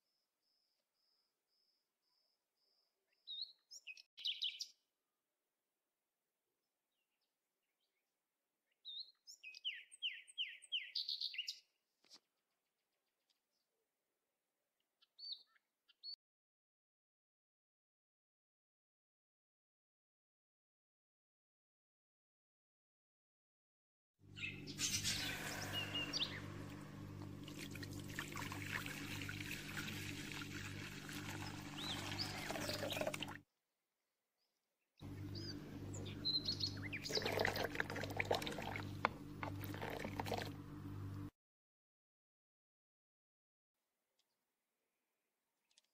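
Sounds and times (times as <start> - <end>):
bird chirping: 2.1 - 4.7, 8.8 - 11.7, 24.3 - 26.9, 31.3 - 33.1, 35.0 - 37.7
low steady hum: 24.3 - 33.4, 35.0 - 41.3
milk pouring into a wok: 27.4 - 33.4, 37.1 - 40.6.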